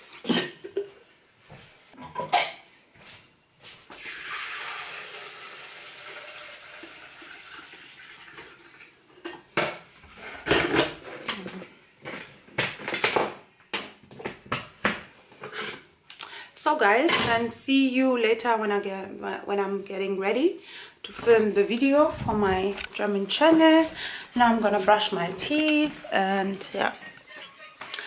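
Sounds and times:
dishes clattering and clinking: 0:02.0 - 0:02.7, 0:09.2 - 0:15.9
water running: 0:03.9 - 0:09.3.

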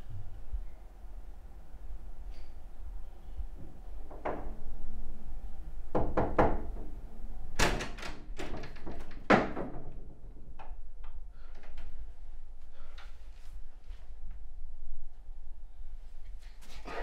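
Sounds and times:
knocks on wooden door: 0:05.9 - 0:06.9
door banging open: 0:07.6 - 0:10.4.

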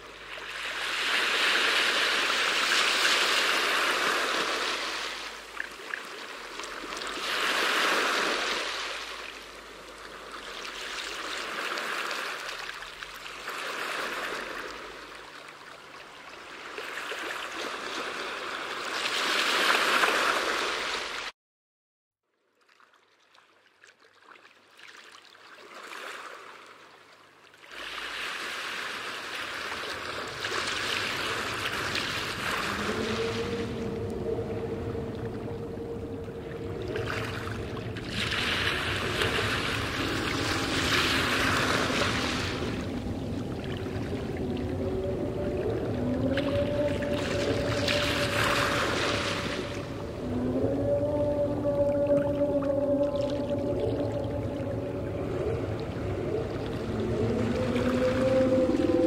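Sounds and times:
underwater rushing and bubbling: 0:00.0 - 0:19.2, 0:27.7 - 0:59.0.

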